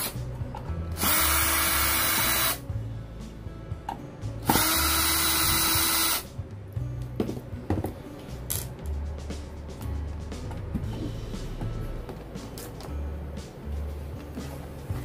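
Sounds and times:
cordless drill running: 0:01.0 - 0:02.6, 0:04.4 - 0:06.3.

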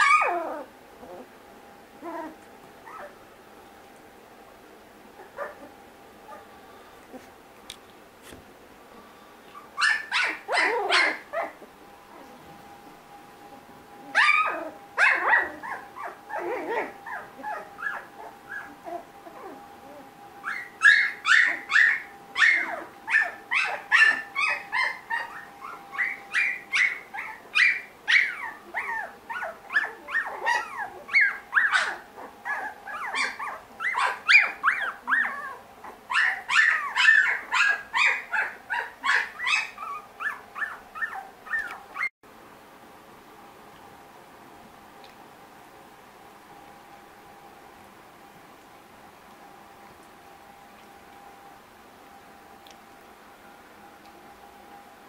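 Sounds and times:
puppies yipping and whimpering: 0:00.0 - 0:01.3, 0:02.0 - 0:03.2, 0:05.2 - 0:06.5, 0:09.5 - 0:12.5, 0:13.5 - 0:42.1.

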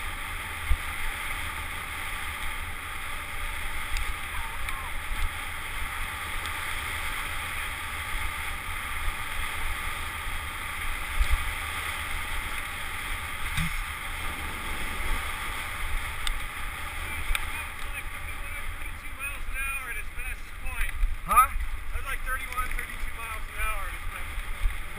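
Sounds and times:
wind buffeting microphone: 0:13.3 - 0:18.9.

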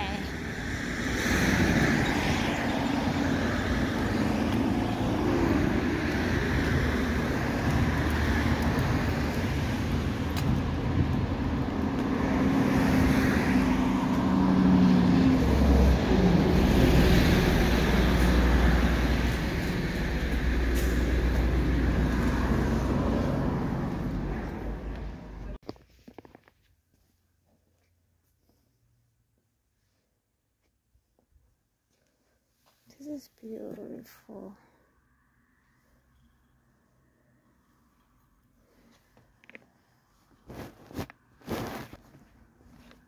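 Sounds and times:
cars driving by: 0:00.0 - 0:25.6.

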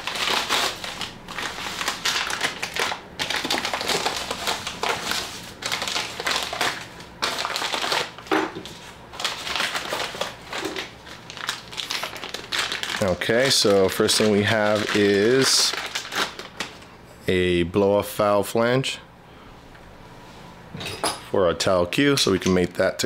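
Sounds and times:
package wrapping crinkling and tearing: 0:00.0 - 0:16.9.

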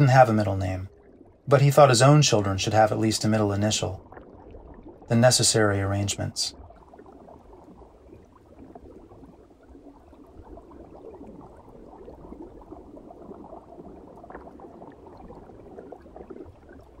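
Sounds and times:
aquarium water bubbling: 0:00.0 - 0:17.0.

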